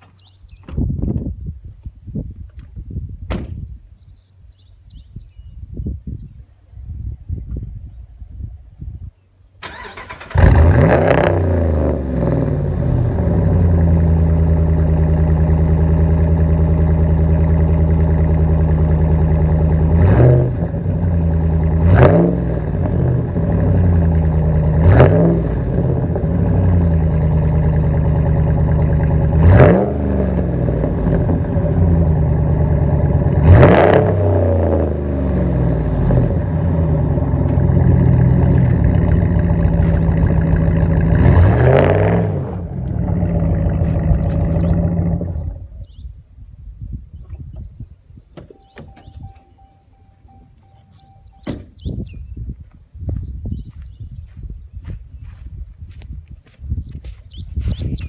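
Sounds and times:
engine starter cranking: 9.6s - 10.9s
loud engine idling and revving: 9.7s - 46.0s.

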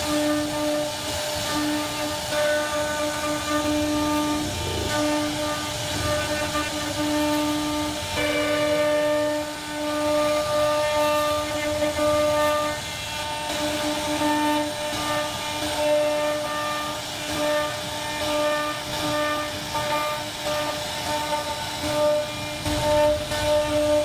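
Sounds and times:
router spindle whining: 0.0s - 24.0s.

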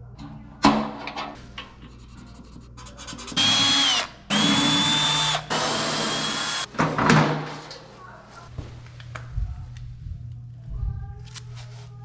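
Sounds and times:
cordless drill whining: 3.4s - 6.7s.

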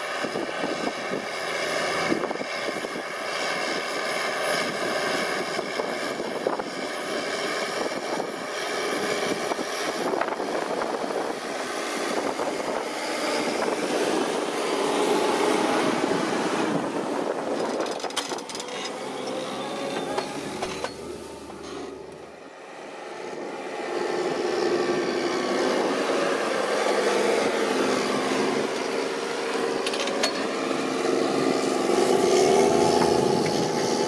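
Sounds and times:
diesel tractor engine running: 0.0s - 34.0s
tracks and turning soil: 0.1s - 22.4s, 23.7s - 34.0s
high whine: 10.1s - 34.0s.

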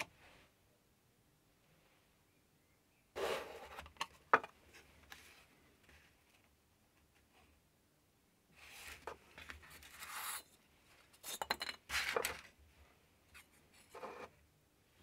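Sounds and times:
cardboard scraping and rubbing: 3.2s - 3.9s.

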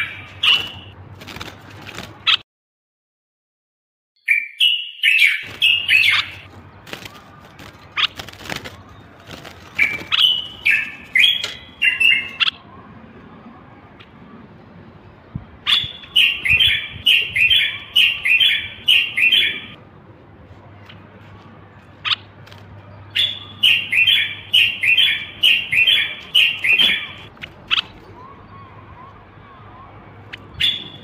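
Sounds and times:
bird singing whistled notes: 4.2s - 6.4s, 15.7s - 19.8s, 23.2s - 27.3s, 30.4s - 31.0s.

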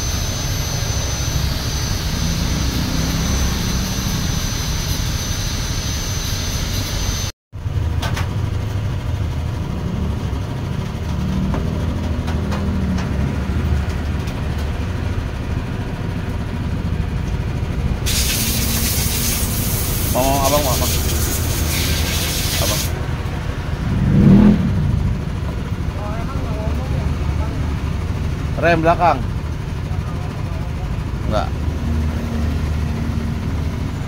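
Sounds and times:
thin high whine: 0.0s - 7.3s, 18.0s - 26.9s
motor running with low rumble: 0.0s - 34.0s
hiss: 18.1s - 22.9s.

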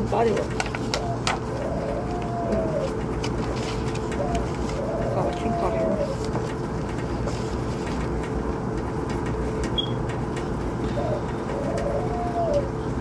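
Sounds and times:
steady low hum: 0.0s - 13.0s
low cooing call: 0.8s - 6.3s, 10.7s - 13.0s.

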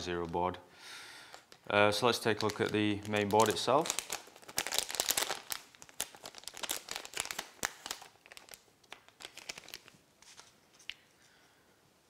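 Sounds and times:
metallised bag crinkling: 1.3s - 10.5s.

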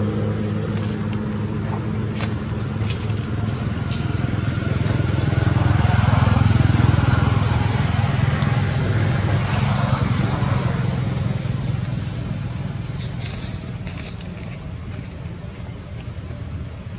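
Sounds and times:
vehicle engine passing: 0.0s - 15.4s.

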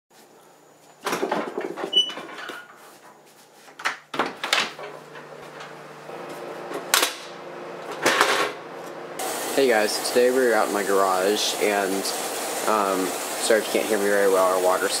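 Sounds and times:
footsteps: 0.2s - 3.9s, 4.7s - 9.0s
door opening and shutting: 1.0s - 2.8s
heater humming: 4.7s - 15.0s.

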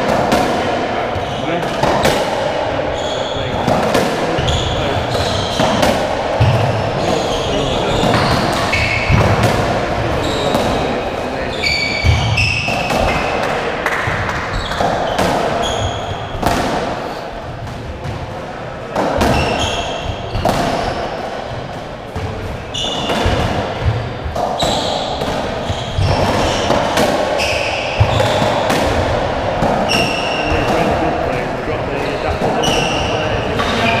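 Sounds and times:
ball smacking rackets and walls: 0.0s - 31.2s, 31.9s - 34.0s
shoes squeaking on wooden floor: 6.4s - 9.4s, 10.1s - 13.3s, 22.2s - 26.8s, 27.4s - 28.7s, 32.4s - 34.0s.

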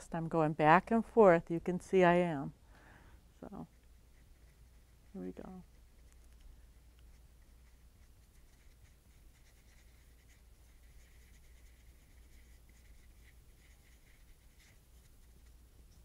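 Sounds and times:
low steady hum: 0.0s - 16.0s
paintbrush scratching on paper: 3.4s - 16.0s.

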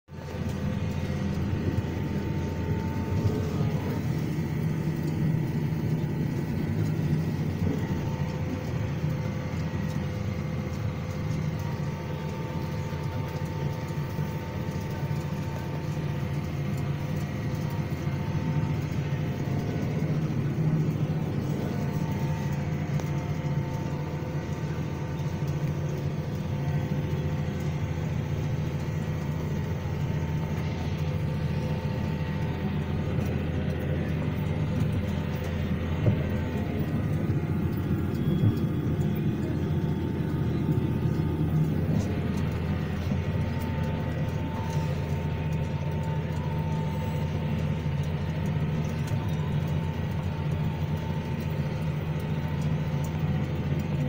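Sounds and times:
tractor engine droning: 0.1s - 54.0s
faint whining tones: 0.2s - 54.0s.

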